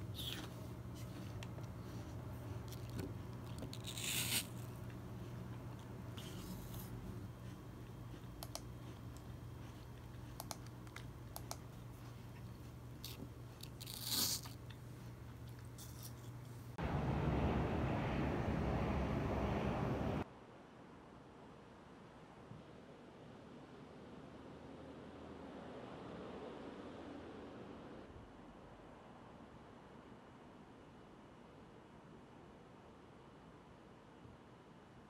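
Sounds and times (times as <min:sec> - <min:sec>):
crunchy bites into raw apple: 0:00.0 - 0:01.2, 0:02.7 - 0:04.7
steady low hum: 0:00.0 - 0:20.2
light clicks: 0:08.4 - 0:09.3.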